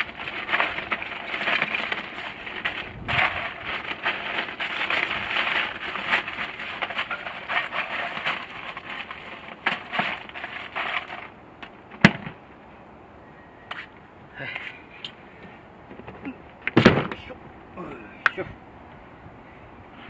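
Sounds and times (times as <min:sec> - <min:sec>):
ice cubes rattling in plastic bag: 0:00.0 - 0:11.4.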